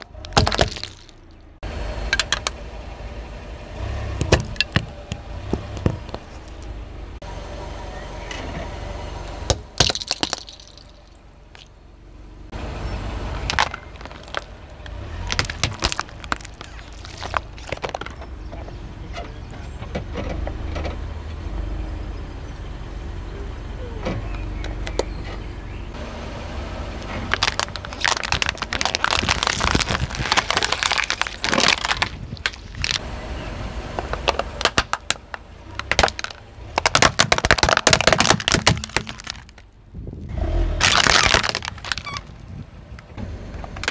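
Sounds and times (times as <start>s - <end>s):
sharp crack of plastic breaking: 0.0s - 1.2s, 9.5s - 10.8s, 13.4s - 14.5s, 15.2s - 18.2s, 27.3s - 33.0s, 34.1s - 39.7s, 40.8s - 42.3s
plastic toys cracking and crunching: 0.0s - 1.3s, 9.8s - 10.9s, 13.4s - 18.2s, 27.0s - 33.0s, 34.0s - 39.8s, 40.8s - 42.5s
low rumble of car: 0.0s - 43.9s.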